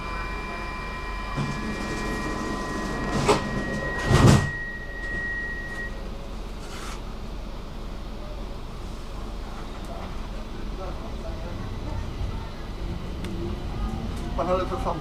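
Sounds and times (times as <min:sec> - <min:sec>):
train electric whine: 0:00.0 - 0:06.4.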